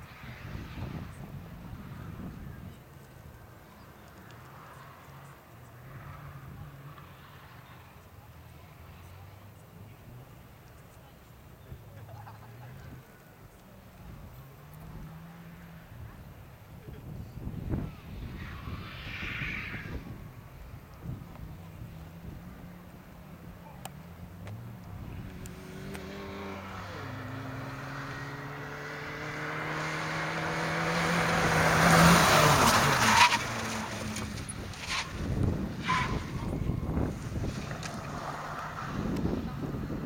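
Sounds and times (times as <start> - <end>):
wind rumble on microphone: 0.0 - 2.9, 15.9 - 22.6, 34.1 - 40.0
tyre noise: 16.8 - 40.0
rally car engine revving: 21.2 - 40.0.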